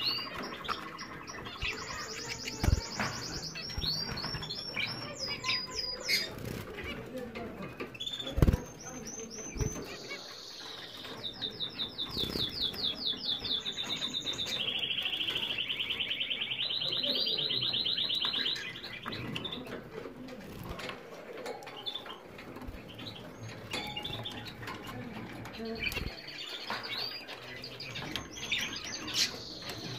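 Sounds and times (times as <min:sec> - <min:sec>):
birds fluttering in water: 0:00.0 - 0:10.1
canary trilling song: 0:00.0 - 0:20.1, 0:21.4 - 0:29.9.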